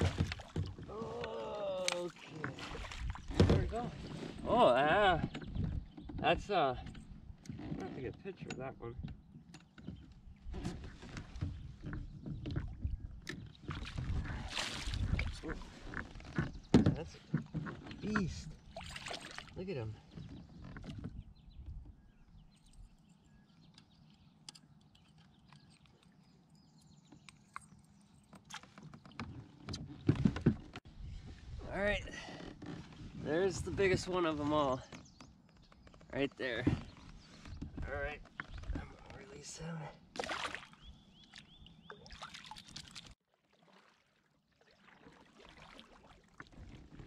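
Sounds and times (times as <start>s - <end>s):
water splashing and trickling: 0.0s - 7.6s, 10.7s - 21.9s, 36.5s - 47.0s
kayak paddle in water: 0.0s - 8.3s, 8.9s - 47.0s
thumps and knocks: 16.3s - 18.3s.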